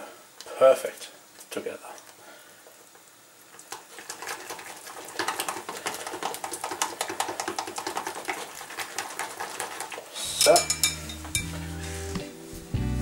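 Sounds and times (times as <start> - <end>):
whisk clicking against a pan: 3.6 - 11.5.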